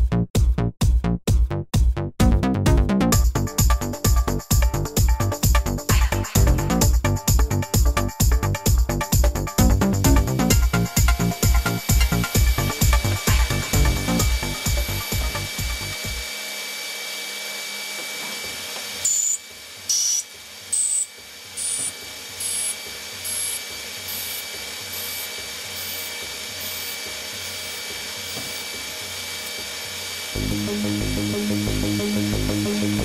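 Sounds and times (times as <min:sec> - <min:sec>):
background music: 0:00.0 - 0:16.0, 0:30.4 - 0:33.0
high-pitched cutting squeal: 0:10.5 - 0:16.0, 0:19.0 - 0:30.4
lathe machine hum: 0:10.6 - 0:33.0.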